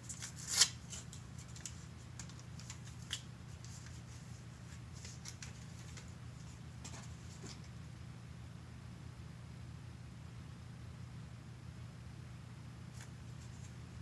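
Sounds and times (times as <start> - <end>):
paper packet rustling: 0.0 - 7.7
steady low hum: 0.0 - 14.0.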